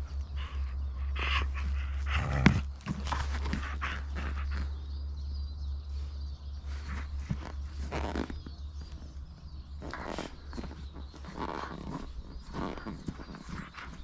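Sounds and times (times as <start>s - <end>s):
puppy teeth scuffing a ball: 2.2s - 4.7s, 6.7s - 9.1s, 9.8s - 14.0s.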